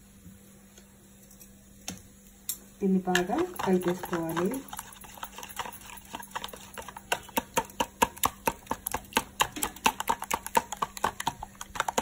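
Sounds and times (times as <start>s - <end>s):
fork beating eggs in bowl: 2.8s - 12.0s.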